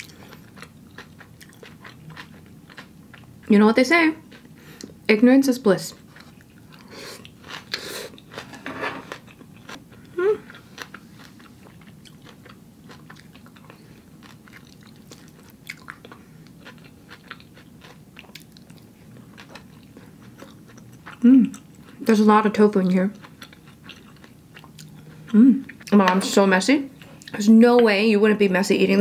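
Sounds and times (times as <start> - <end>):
person humming briefly: 10.1 - 10.5.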